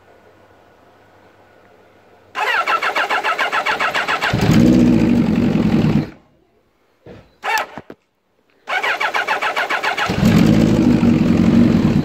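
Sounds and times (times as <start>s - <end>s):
electric starter cranking engine: 2.4s - 6.2s, 8.7s - 12.0s
motorcycle engine running loudly: 4.4s - 6.2s, 10.0s - 12.0s.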